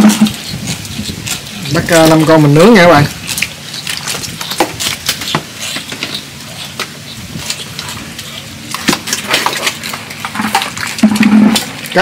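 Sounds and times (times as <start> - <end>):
fish splashing in water: 2.6 - 12.0.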